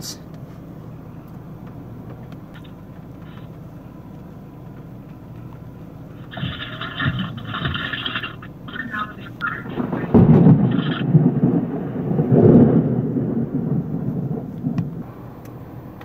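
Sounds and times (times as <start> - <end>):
vehicle engine hum from inside cab: 0.0 - 16.0
harsh scratchy noise: 6.2 - 11.1.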